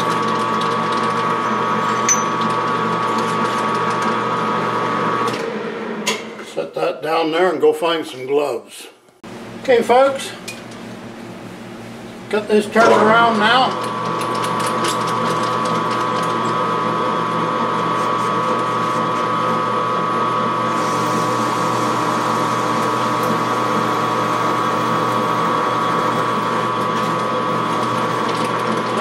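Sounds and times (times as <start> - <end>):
metal lathe gear whine: 19.3 - 29.0.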